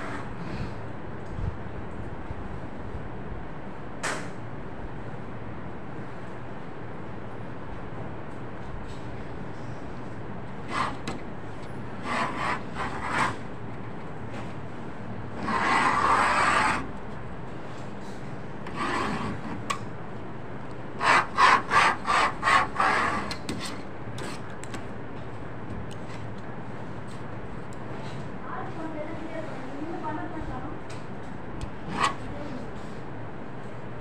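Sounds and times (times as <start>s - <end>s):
hand tool scraping sheet material: 12.0s - 13.4s, 15.4s - 16.9s, 18.6s - 19.8s, 21.0s - 24.5s, 31.8s - 32.5s.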